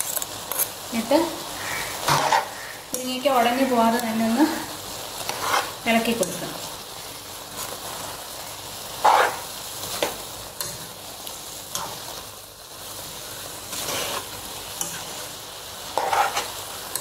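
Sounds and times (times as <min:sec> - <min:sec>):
low sizzle: 0:00.0 - 0:17.0
spatula scraping pan: 0:01.6 - 0:02.7, 0:05.2 - 0:06.0, 0:09.0 - 0:10.1, 0:13.7 - 0:15.2, 0:15.9 - 0:17.0.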